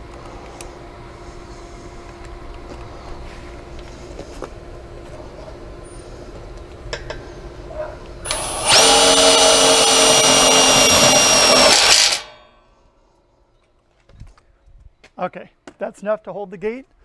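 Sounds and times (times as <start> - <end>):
cordless drill whine: 8.2 - 12.4.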